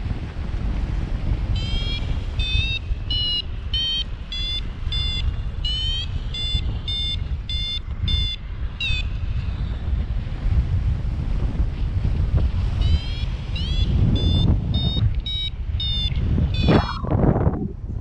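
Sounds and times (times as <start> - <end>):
wind rumbling over microphone: 0.0 - 18.0
variometer short high beeps: 1.6 - 9.2, 12.8 - 17.2.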